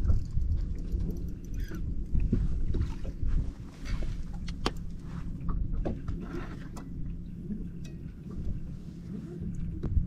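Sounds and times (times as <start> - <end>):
boat low rumble: 0.0 - 10.0.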